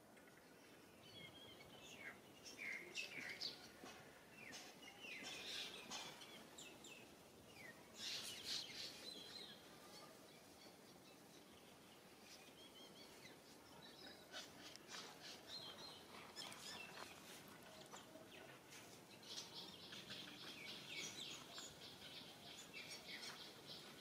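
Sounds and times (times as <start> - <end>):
soft outdoor hiss: 0.0 - 24.0.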